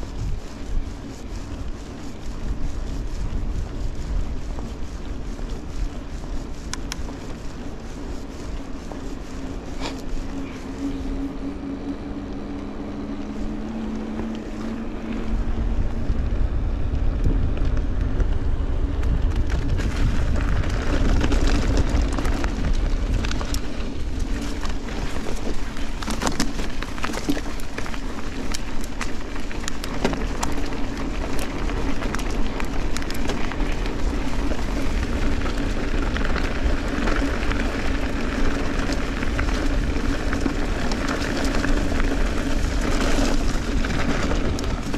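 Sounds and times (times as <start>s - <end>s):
steady drone: 0.0s - 44.9s
wind rushing over microphone: 0.0s - 44.9s
bike knocks and rattles: 17.0s - 44.9s.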